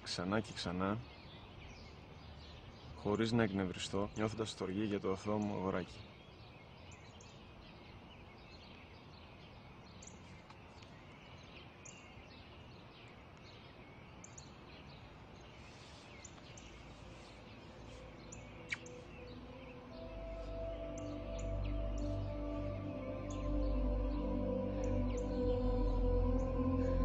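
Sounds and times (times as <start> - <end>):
low background hiss: 0.0 - 27.0
small birds chirping: 0.0 - 27.0
soft music: 16.6 - 27.0.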